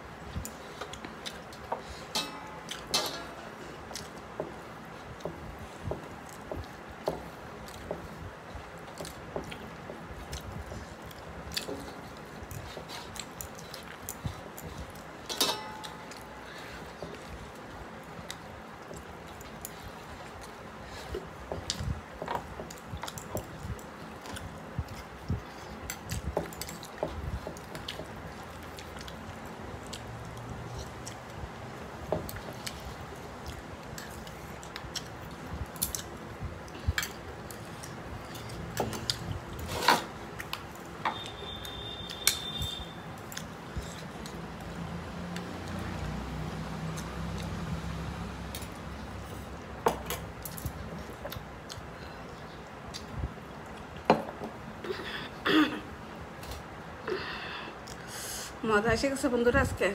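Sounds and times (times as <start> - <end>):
plates and dishes clinking: 2.1 - 3.5, 15.3 - 16.0
chewing: 6.2 - 15.2, 15.8 - 39.8.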